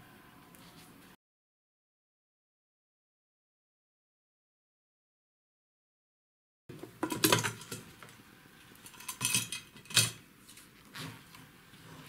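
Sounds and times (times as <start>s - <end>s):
sheet metal clinks and scrapes: 8.9s - 10.2s.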